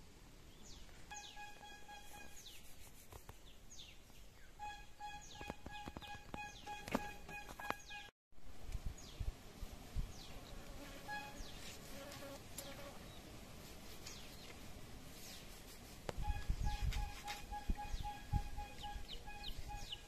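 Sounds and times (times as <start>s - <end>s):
birds chirping: 0.5s - 2.7s, 3.4s - 8.1s, 16.2s - 20.0s.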